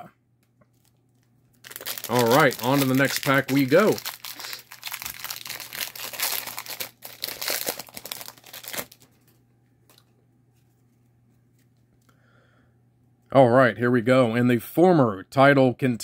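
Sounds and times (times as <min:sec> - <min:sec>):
wrapper tearing and crinkling: 0:00.7 - 0:09.1.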